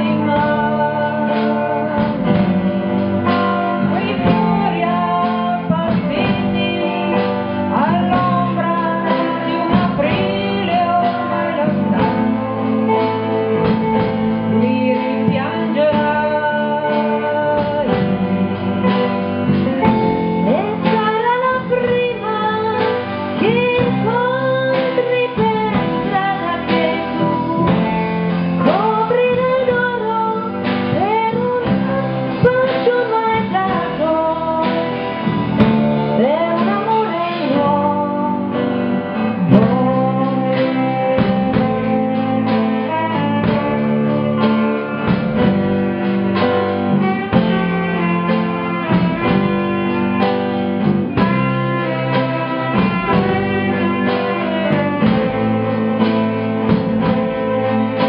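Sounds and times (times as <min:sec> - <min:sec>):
guitars and bass guitar: 0:00.0 - 0:58.0.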